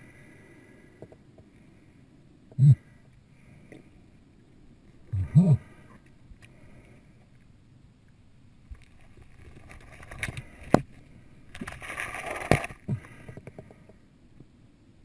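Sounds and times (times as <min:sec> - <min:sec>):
faint steady hiss: 0:00.0 - 0:15.0
muffled underwater gurgling: 0:05.1 - 0:06.0.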